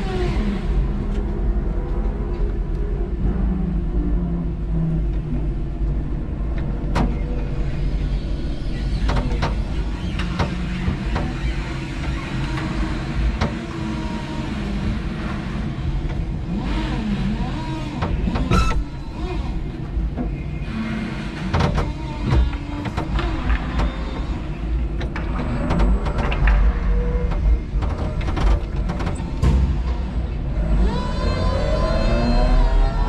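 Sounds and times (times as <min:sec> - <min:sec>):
forklift motor and hydraulic hum: 0:00.0 - 0:33.0
sharp clicks and knocks: 0:06.5 - 0:07.6, 0:08.6 - 0:14.1, 0:14.8 - 0:30.5.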